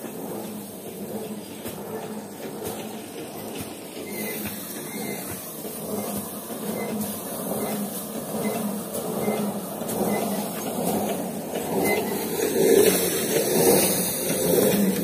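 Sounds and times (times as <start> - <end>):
rice thresher mechanical hum: 0.0 - 15.0.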